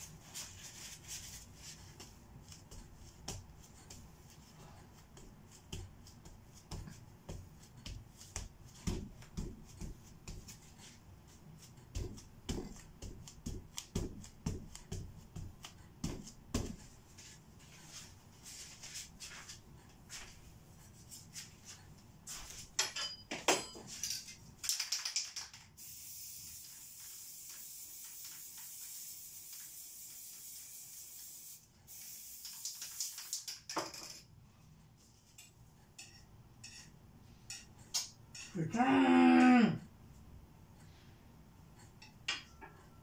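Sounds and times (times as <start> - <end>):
spray-paint can hissing: 25.8 - 33.6.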